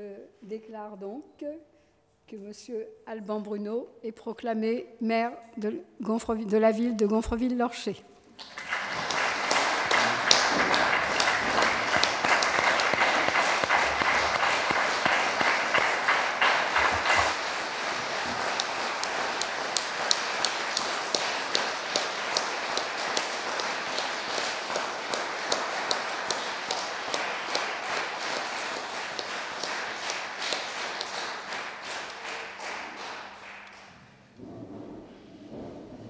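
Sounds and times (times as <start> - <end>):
group of people applauding: 8.4 - 34.2.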